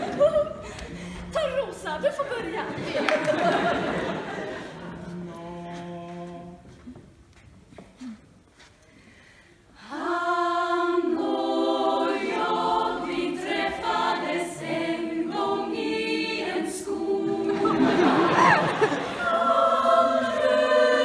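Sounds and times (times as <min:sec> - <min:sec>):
women's choir singing a cappella: 0:09.8 - 0:21.0.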